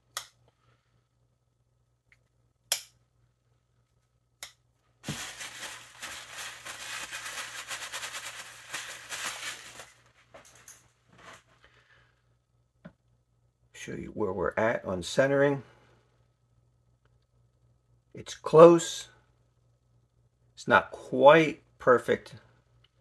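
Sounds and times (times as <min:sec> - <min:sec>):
crinkly paper rustling: 0:05.0 - 0:11.5.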